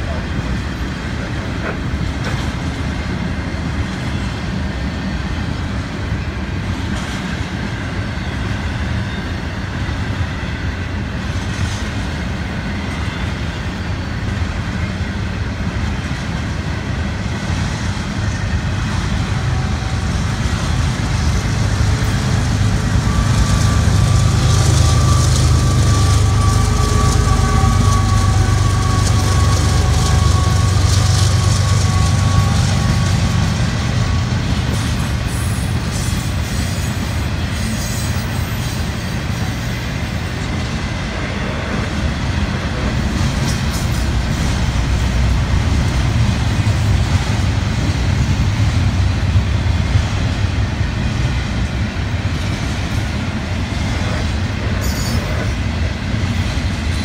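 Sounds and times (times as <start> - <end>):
diesel locomotive rumble and whine: 0.0 - 57.0
train wheels clattering over rail joints: 1.1 - 4.1.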